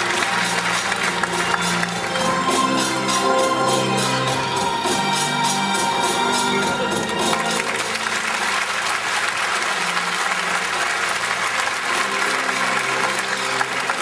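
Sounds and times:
audience applauding: 0.0s - 3.4s, 7.0s - 14.0s.

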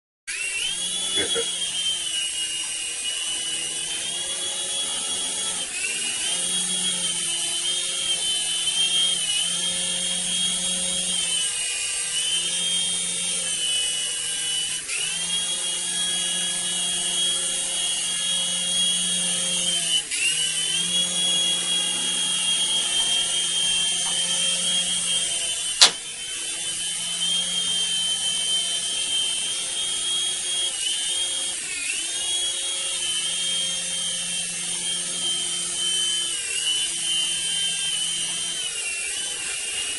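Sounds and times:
electric rotor motor whining: 0.3s - 39.9s
sharp click: 25.8s - 26.1s.

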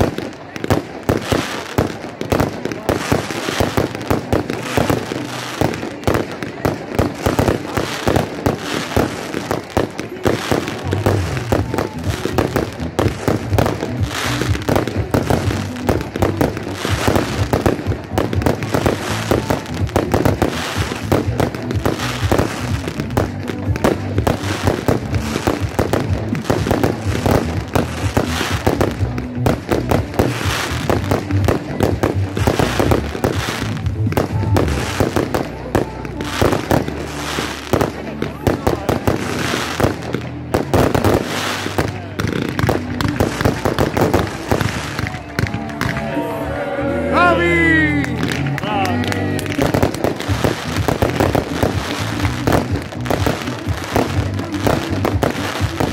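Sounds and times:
fireworks bangs and crackles: 0.0s - 46.2s, 47.2s - 55.9s.

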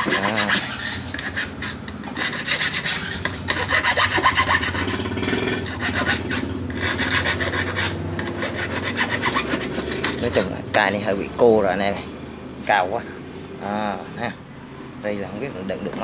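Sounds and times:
hand file rasping over nails: 0.0s - 10.6s.

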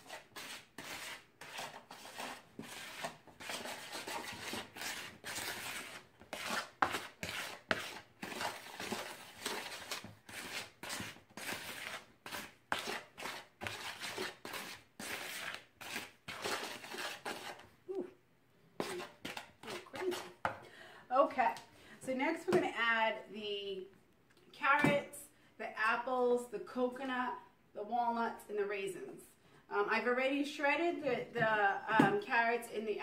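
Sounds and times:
wooden spoon stirring flour in bowl: 0.0s - 17.7s, 18.8s - 20.6s.

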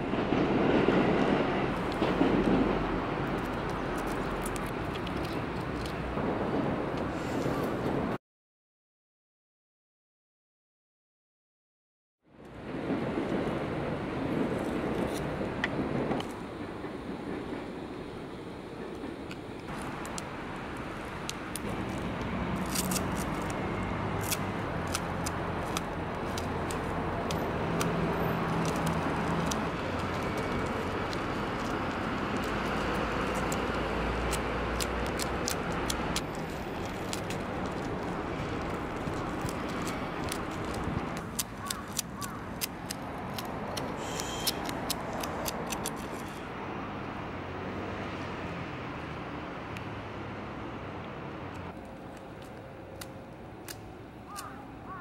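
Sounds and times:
street traffic: 0.0s - 8.2s, 12.3s - 55.0s
sharp clicks and scraping on concrete: 1.7s - 6.2s, 19.0s - 46.5s, 51.5s - 54.6s
vehicle engine humming: 19.7s - 55.0s.

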